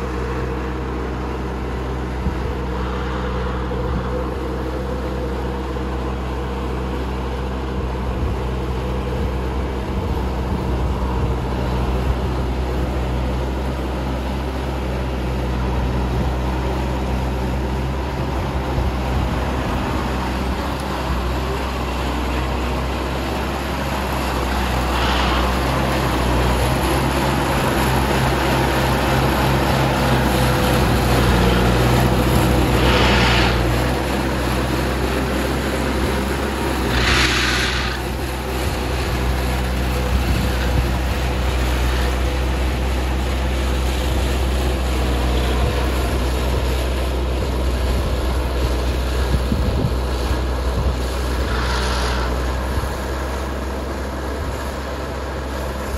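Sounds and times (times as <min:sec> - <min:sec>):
harvesting machine engine running: 0:00.0 - 0:55.9
short hissing rushes: 0:24.2 - 0:26.1, 0:32.3 - 0:34.2, 0:36.2 - 0:38.7, 0:51.1 - 0:53.3.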